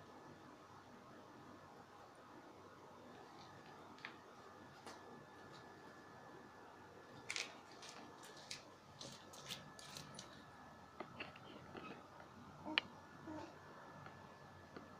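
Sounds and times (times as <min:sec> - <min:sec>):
faint high hum: 0:00.0 - 0:14.9
faint clicks and taps: 0:03.2 - 0:05.7, 0:07.3 - 0:13.0.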